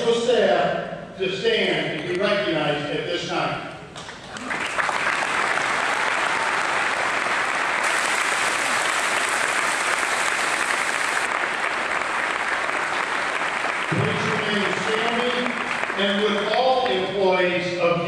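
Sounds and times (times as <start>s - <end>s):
crowd applauding: 4.1s - 17.1s.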